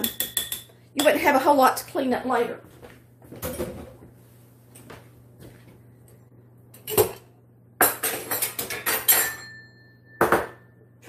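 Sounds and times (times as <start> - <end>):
metal kitchen utensils clattering: 7.8 - 10.6.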